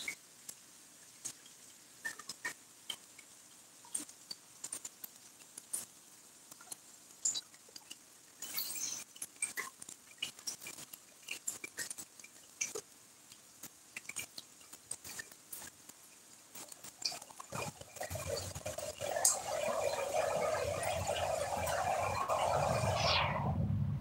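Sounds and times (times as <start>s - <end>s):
rain pattering and dripping: 0.0s - 23.2s
steady rushing with low rumble: 20.2s - 24.0s.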